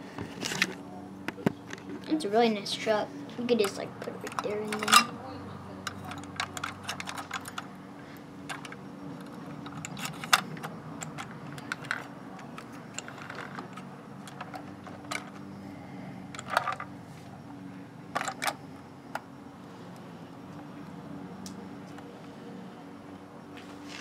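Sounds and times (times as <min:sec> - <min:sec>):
steady low hum: 0:00.0 - 0:24.0
toy truck clicks and rattles: 0:03.5 - 0:05.1, 0:05.8 - 0:07.7, 0:08.5 - 0:15.4, 0:16.4 - 0:16.9, 0:18.1 - 0:18.6.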